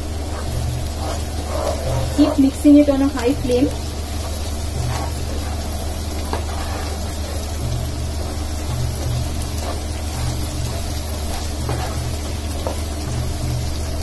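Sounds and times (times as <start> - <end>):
onions sizzling in oil: 0.0 - 14.0
steady low hum: 0.0 - 14.0
ladle scraping and tapping pan: 4.2 - 12.9.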